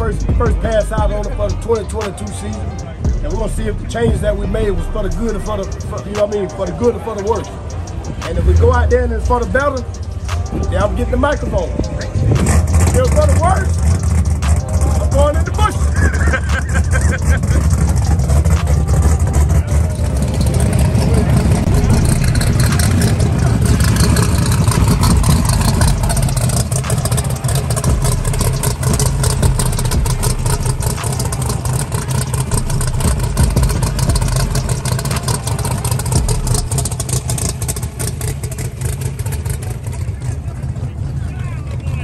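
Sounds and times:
race car engines idling: 0.0s - 42.0s.

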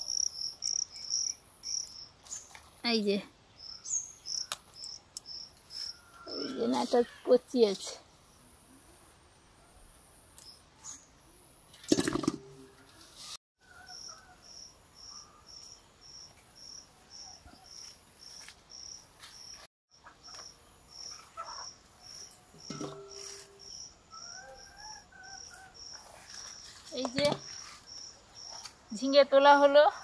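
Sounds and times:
insect chirping: 0.0s - 2.5s, 3.5s - 7.0s, 13.7s - 30.0s
knocks with metallic ring: 22.6s - 23.8s.

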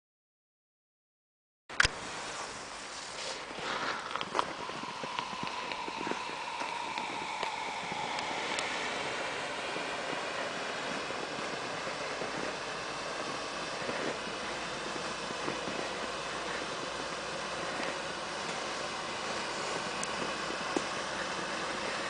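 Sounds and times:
smoke flare hissing: 2.0s - 22.0s
faint whistle: 4.5s - 13.1s.

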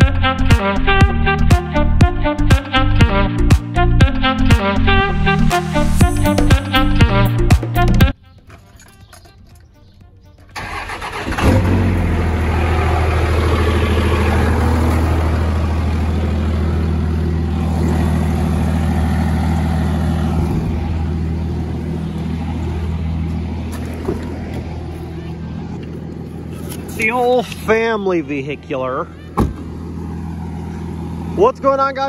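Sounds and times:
vehicle engine starting and idling: 8.2s - 32.0s.

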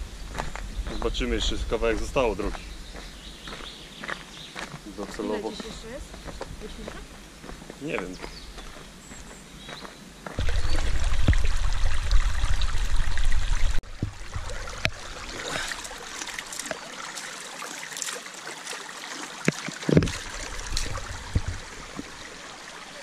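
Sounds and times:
low rumble on microphone: 0.0s - 3.2s, 10.4s - 15.3s, 20.0s - 22.2s
stream running over stones: 0.3s - 23.0s.

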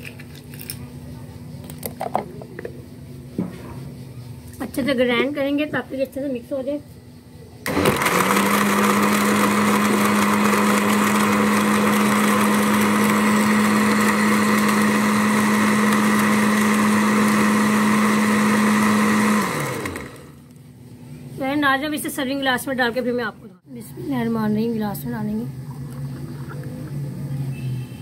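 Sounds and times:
blender motor blending ice: 7.7s - 20.4s.

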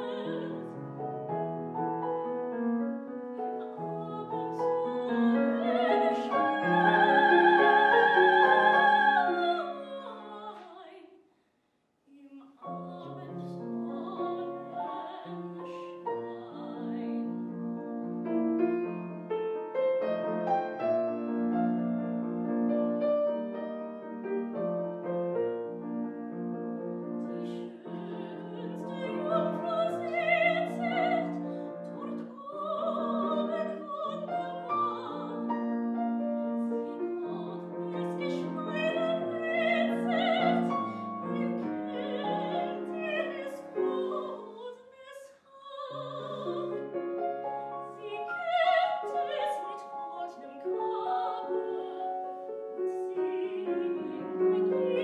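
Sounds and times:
woman singing classical with vibrato: 0.0s - 1.3s, 3.4s - 11.2s, 12.1s - 17.9s, 27.0s - 55.0s
grand piano accompaniment: 0.0s - 10.9s, 12.6s - 44.7s, 45.8s - 55.0s.

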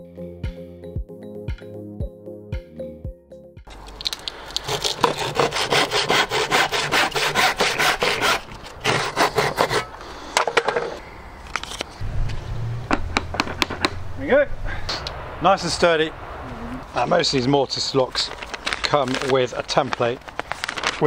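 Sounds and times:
handsaw cutting wood: 4.6s - 10.0s
wood piece knocking: 12.9s - 14.0s.

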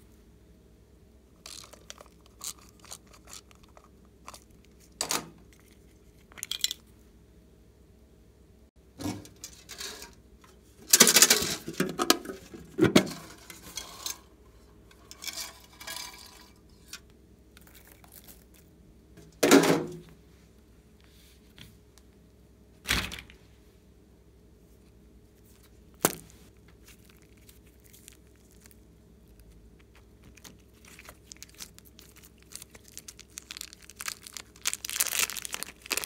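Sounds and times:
metal tin and lid clattering: 10.9s - 14.3s.

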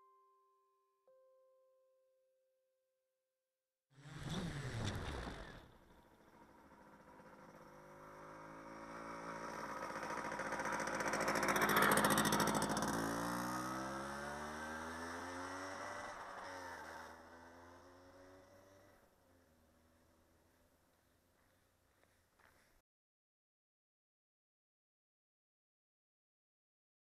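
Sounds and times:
small motorcycle riding past: 4.0s - 22.1s.

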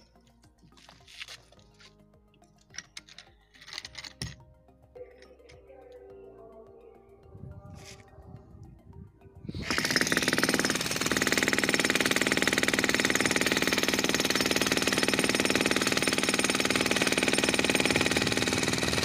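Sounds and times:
demolition hammer breaking concrete: 9.6s - 19.0s.

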